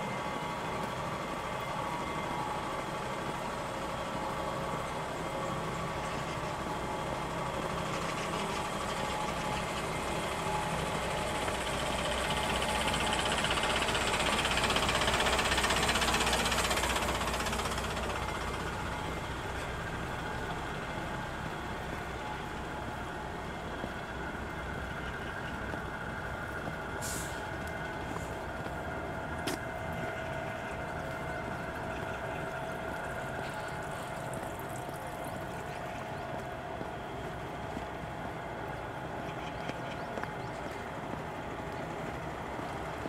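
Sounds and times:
bus engine and road noise: 0:00.0 - 0:43.0
brief hiss: 0:27.0 - 0:27.6.

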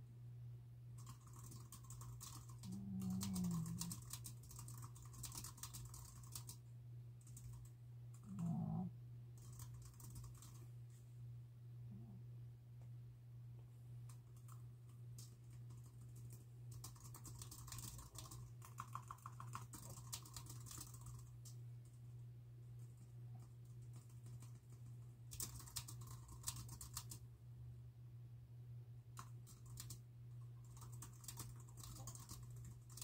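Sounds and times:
steady low hum: 0:00.0 - 0:33.0
computer keyboard typing: 0:01.0 - 0:06.6, 0:07.2 - 0:07.7, 0:09.4 - 0:10.6, 0:14.1 - 0:14.6, 0:15.2 - 0:21.6, 0:23.4 - 0:27.2, 0:29.2 - 0:33.0.

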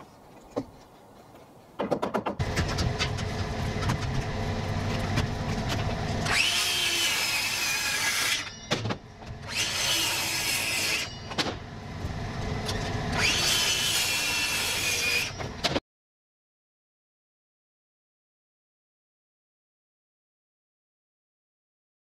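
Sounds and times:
sharp knocks: 0:01.8 - 0:04.0
circular saw cutting wood: 0:02.4 - 0:08.7, 0:09.3 - 0:11.3, 0:12.2 - 0:15.4.

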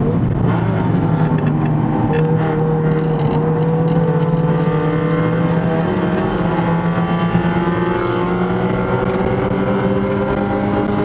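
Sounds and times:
race car engine at high revs: 0:00.0 - 0:11.0.

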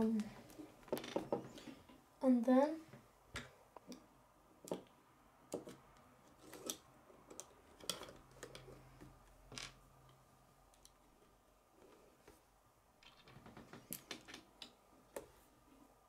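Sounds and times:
plastic parts clicking and tapping: 0:05.5 - 0:11.0.

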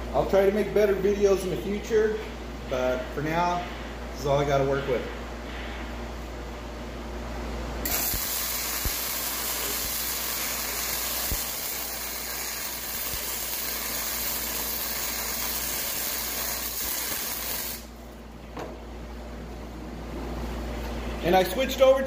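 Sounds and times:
welding arc crackling and hissing: 0:07.8 - 0:18.0.

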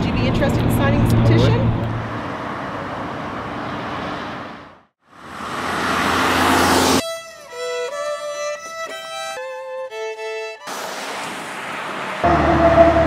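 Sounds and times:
cars on wet road: 0:00.0 - 0:07.0, 0:10.6 - 0:13.0
solo violin music: 0:07.0 - 0:10.7.

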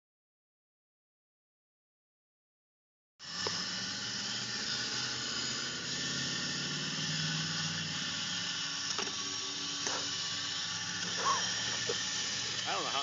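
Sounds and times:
electric motors humming: 0:03.2 - 0:13.0
rover wheels driving through sand: 0:03.2 - 0:13.0.

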